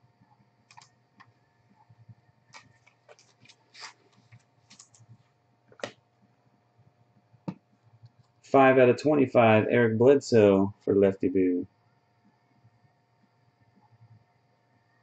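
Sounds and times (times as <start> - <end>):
faint low hum: 0.0 - 15.0
clicks and rustles of cards: 2.5 - 6.0.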